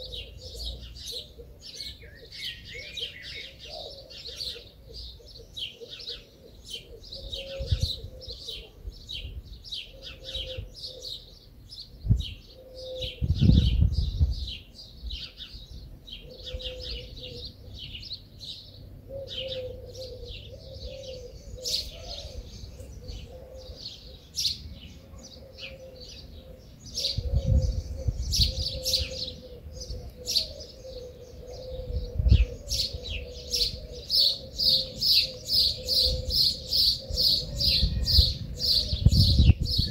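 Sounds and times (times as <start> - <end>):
small birds chirping: 0.0 - 39.9.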